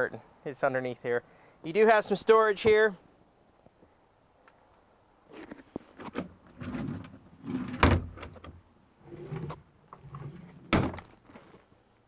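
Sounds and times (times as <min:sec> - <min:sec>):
wooden drawers opening and shutting: 0:05.4 - 0:11.1.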